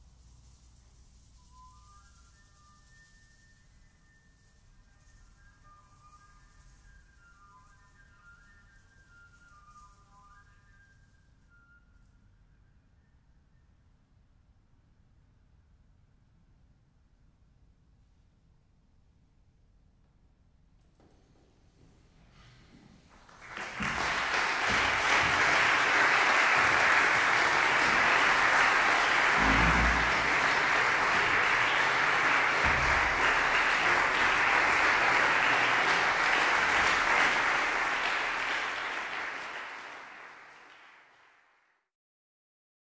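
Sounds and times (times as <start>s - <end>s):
audience applauding: 23.2s - 41.4s.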